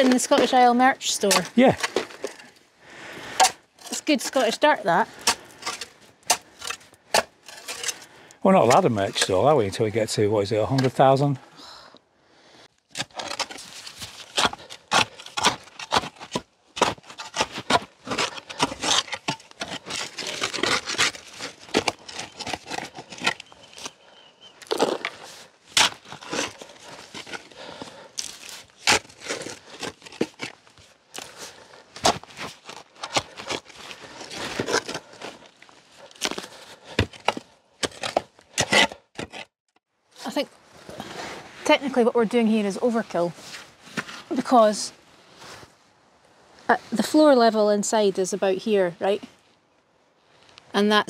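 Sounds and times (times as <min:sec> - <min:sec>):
shovel scraping stony soil: 0:00.0 - 0:02.5, 0:03.2 - 0:09.6, 0:12.9 - 0:39.5, 0:40.3 - 0:45.8
clods and stones thrown: 0:24.6 - 0:27.5.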